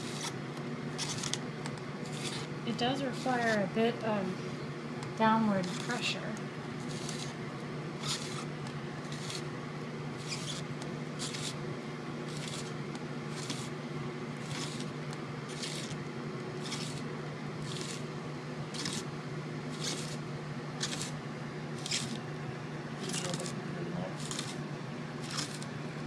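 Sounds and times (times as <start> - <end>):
spiral slicer scraping cut: 0.0 - 3.7, 5.4 - 7.4, 8.0 - 9.5, 10.2 - 11.6, 12.2 - 13.8, 14.4 - 16.0, 16.6 - 18.1, 18.7 - 19.1, 19.7 - 21.2, 21.8 - 22.2, 23.0 - 24.6, 25.2 - 25.7.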